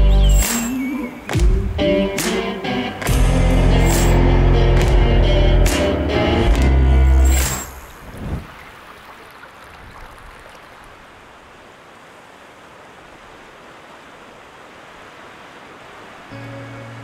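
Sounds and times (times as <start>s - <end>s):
music tones: 0.0s - 7.7s, 16.3s - 17.0s
water flowing: 2.6s - 17.0s.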